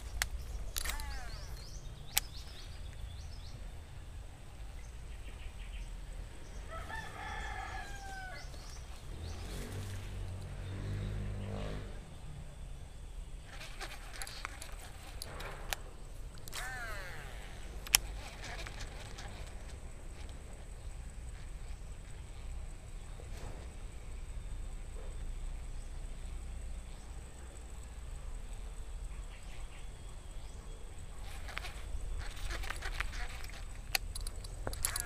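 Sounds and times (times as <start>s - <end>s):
fishing reel spool whining: 0.0s - 2.6s, 13.2s - 20.6s, 31.2s - 35.0s
low droning hum: 0.0s - 35.0s
rooster crowing: 6.6s - 8.8s.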